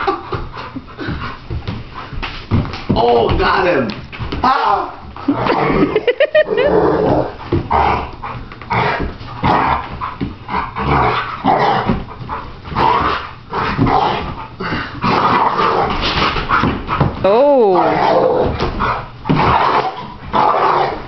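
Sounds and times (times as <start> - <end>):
thuds and scuffling on floor: 0.3 - 4.5
dog growling and snarling: 4.6 - 21.0.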